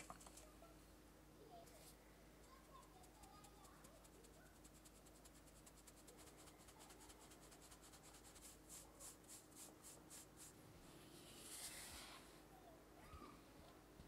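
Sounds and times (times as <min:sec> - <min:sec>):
sieve shaking flour: 0:00.0 - 0:00.6, 0:02.9 - 0:10.6
spatula rustling in flour: 0:02.8 - 0:12.5.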